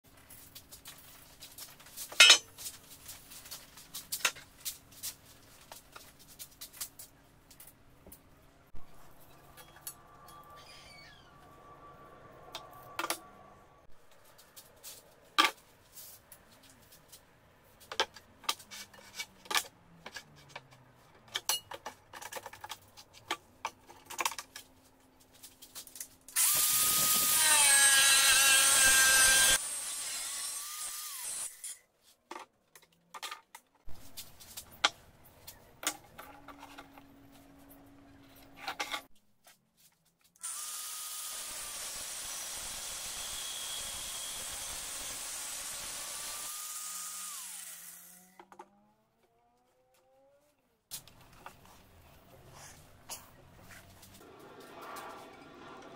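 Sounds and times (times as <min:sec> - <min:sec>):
steel pipe and tools clattering: 0:00.5 - 0:05.2, 0:17.8 - 0:24.8
angle grinder cutting steel pipe: 0:26.4 - 0:31.8, 0:40.4 - 0:48.4.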